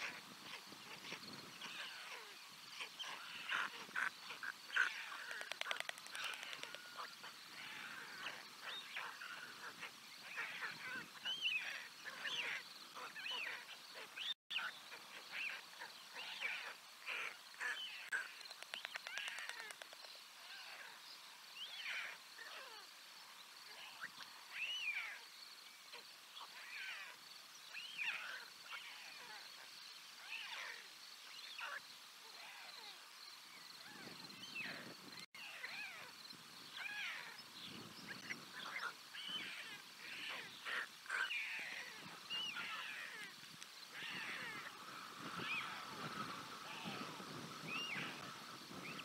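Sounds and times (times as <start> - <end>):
wind rumble on microphone: 33.9 - 35.2, 43.3 - 49.0.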